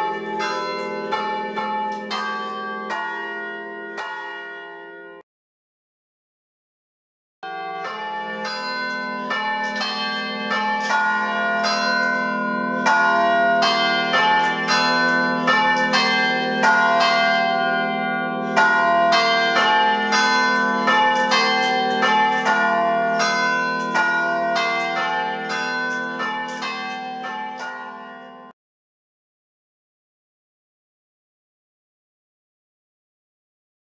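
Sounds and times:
carillon bells playing a tune: 0.0 - 5.1, 7.5 - 28.5.

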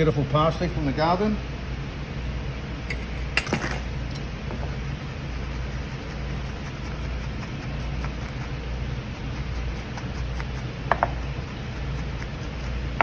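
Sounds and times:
steady low hum: 0.0 - 13.0
knife chopping on cutting board: 10.9 - 11.2.

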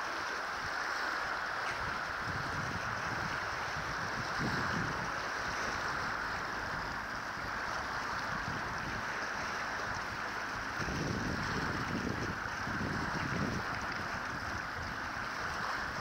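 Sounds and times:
water washing against rocks: 0.0 - 16.0
wind buffeting microphone: 0.6 - 16.0.

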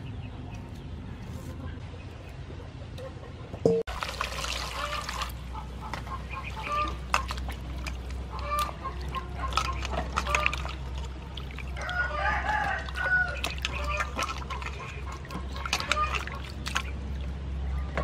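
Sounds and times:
chickens clucking: 1.5 - 3.8, 4.7 - 17.1
water splashing in a steel bowl: 3.9 - 17.4.

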